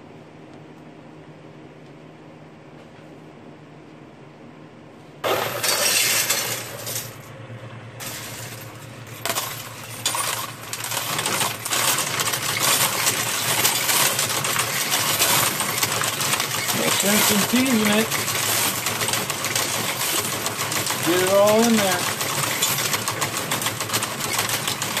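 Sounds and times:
coins clattering through sorter: 0:05.2 - 0:07.3, 0:08.0 - 0:25.0
coin sorter motor hum: 0:05.2 - 0:25.0.

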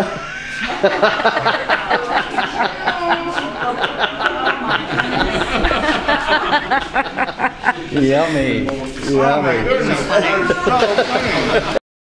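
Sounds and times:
people laughing and chattering: 0:00.0 - 0:11.8.

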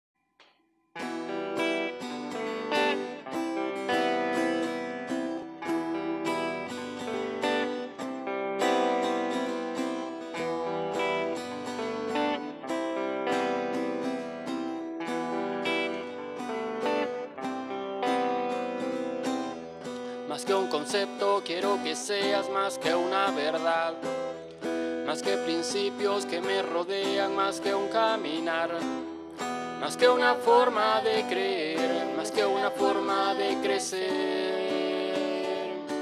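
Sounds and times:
guitars strumming: 0:01.0 - 0:36.0.

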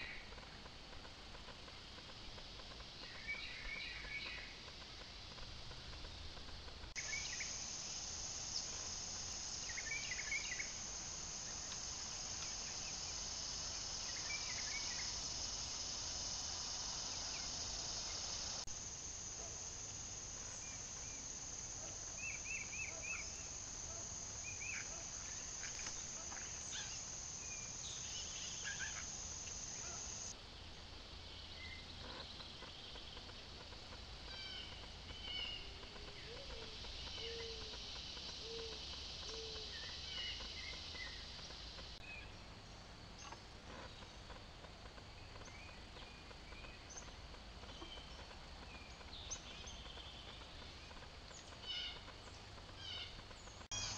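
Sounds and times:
high-pitched insect drone: 0:02.4 - 0:30.4, 0:32.0 - 0:42.0, 0:52.7 - 0:53.9.

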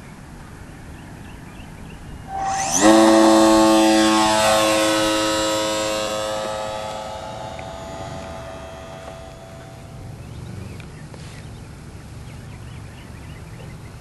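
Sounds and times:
model airplane motor whine: 0:02.3 - 0:10.2.

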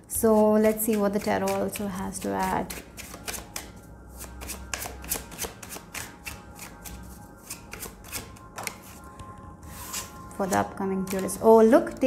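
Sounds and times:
cards being shuffled: 0:02.7 - 0:09.0.

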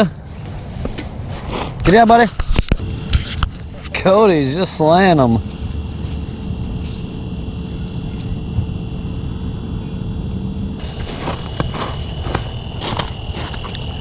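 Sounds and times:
low wind rumble: 0:00.0 - 0:14.0
high-pitched electronic whine: 0:01.9 - 0:14.0
footsteps crunching on snow: 0:10.8 - 0:14.0.

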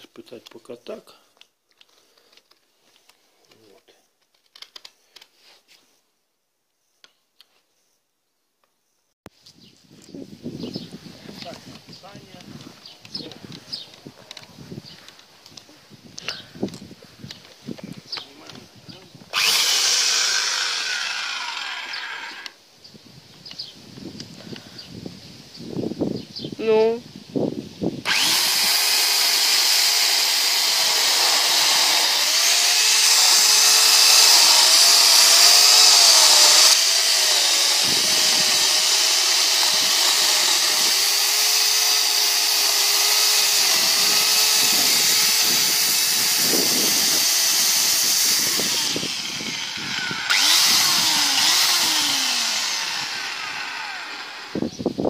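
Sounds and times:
electric chainsaw cutting log: 0:19.3 - 0:22.6, 0:28.0 - 0:54.7.

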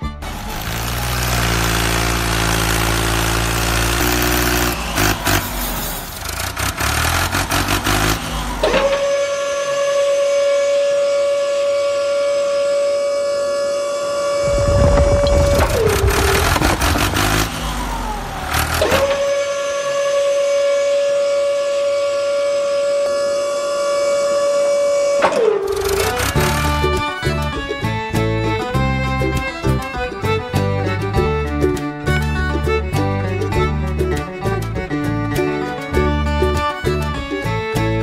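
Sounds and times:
toy tractor engine sound: 0:00.0 - 0:38.0
small electric motor whining: 0:00.2 - 0:20.3, 0:22.2 - 0:28.0
miniature bricks sliding off: 0:14.8 - 0:17.7, 0:25.2 - 0:27.0.

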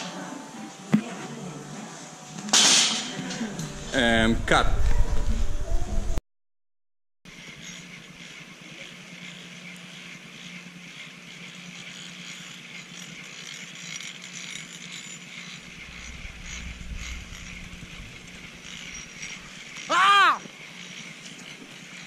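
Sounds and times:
wind rumble on microphone: 0:03.8 - 0:06.2, 0:15.7 - 0:19.5
low steady hum: 0:15.6 - 0:19.6.

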